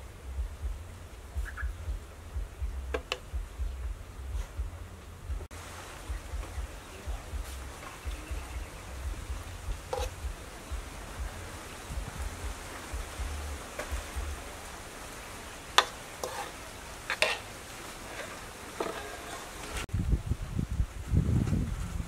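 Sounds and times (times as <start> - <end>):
metal spoon scraping metal bowl: 9.9 - 10.2, 15.8 - 17.5, 18.1 - 19.8.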